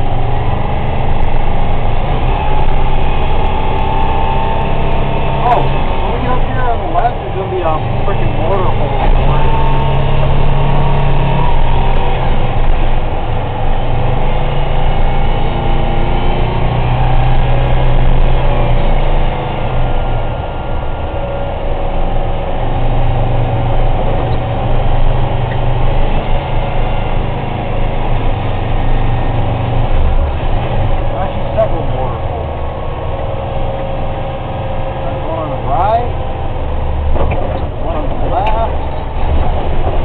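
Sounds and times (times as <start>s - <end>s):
truck engine running: 0.0s - 40.0s
tyre and road noise: 0.0s - 40.0s.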